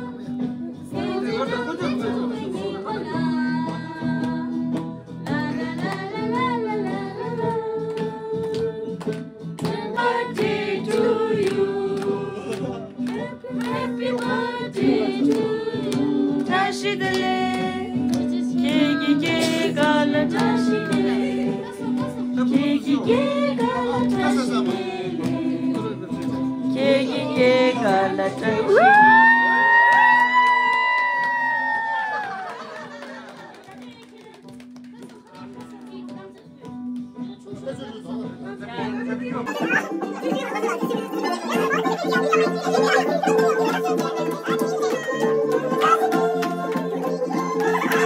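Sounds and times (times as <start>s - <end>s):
instrumental backing: 0.0s - 48.0s
person singing: 10.0s - 30.8s, 39.5s - 48.0s.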